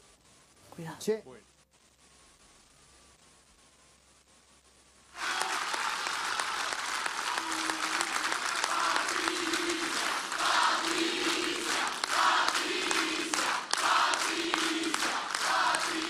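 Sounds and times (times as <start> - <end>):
crowd applauding: 5.2 - 16.0.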